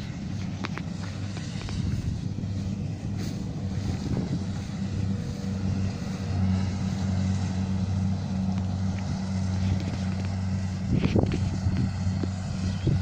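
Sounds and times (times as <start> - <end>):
diesel engine humming: 0.0 - 13.0.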